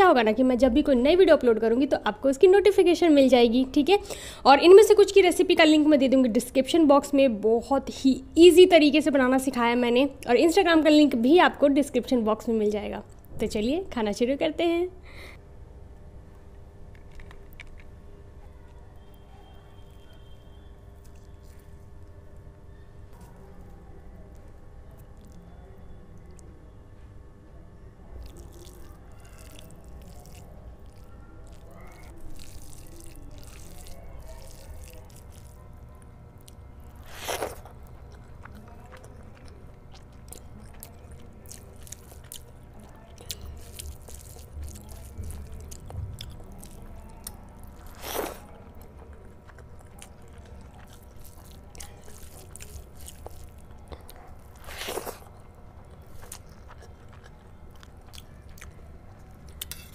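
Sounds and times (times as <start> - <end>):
chewing with wet mouth clicks: 24.2 - 26.5, 28.2 - 59.9
hand squishing rice: 28.2 - 35.6, 43.4 - 45.8, 49.4 - 56.2.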